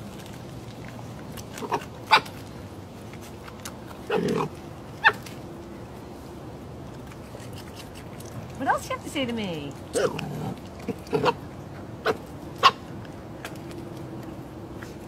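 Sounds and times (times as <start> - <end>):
fox yelping: 1.6 - 2.4, 4.1 - 5.3, 12.0 - 12.8.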